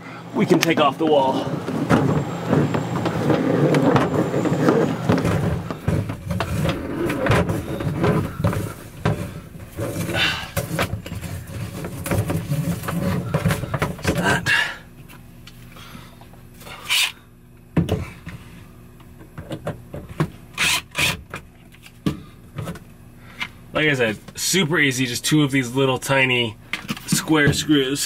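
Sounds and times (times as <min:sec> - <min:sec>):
hose scraping through wall panel: 0:01.3 - 0:13.8.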